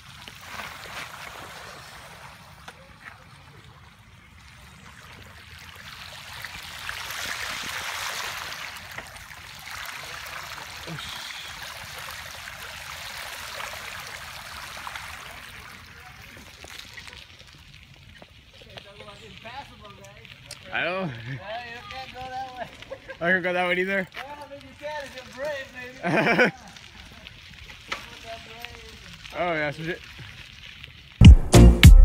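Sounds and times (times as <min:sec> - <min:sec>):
bicycle tyres splashing through water: 0:00.0 - 0:31.2.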